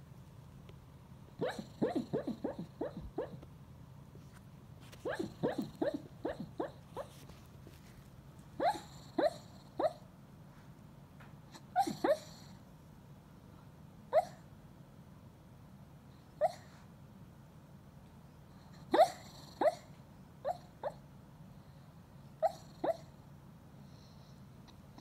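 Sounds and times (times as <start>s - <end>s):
dog yipping in its sleep: 1.4s - 3.4s, 5.0s - 7.3s, 8.6s - 10.1s, 11.5s - 12.5s, 14.1s - 14.4s, 16.4s - 16.8s, 18.8s - 21.0s, 22.4s - 23.1s.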